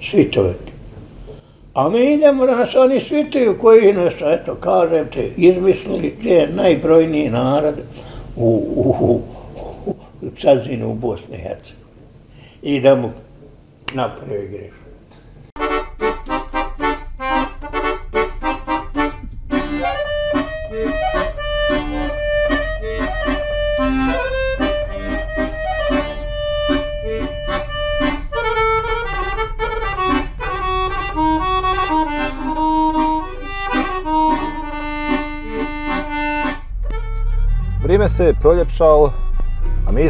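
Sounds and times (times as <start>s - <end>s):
accordion music: 2.2s - 9.4s, 15.6s - 40.0s.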